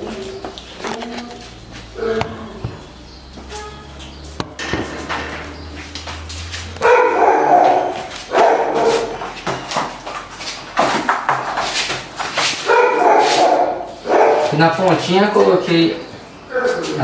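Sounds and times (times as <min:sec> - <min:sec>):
dog barking and yelping: 0:06.8 - 0:09.3, 0:12.6 - 0:14.6.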